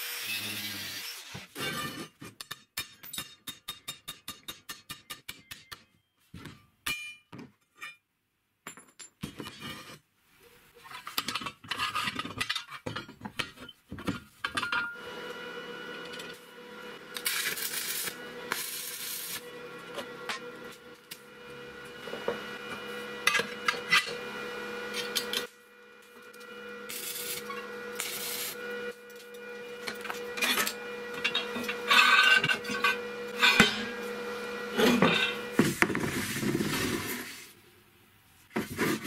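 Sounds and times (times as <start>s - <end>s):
steady hum with hissing: 14.6s - 38.3s.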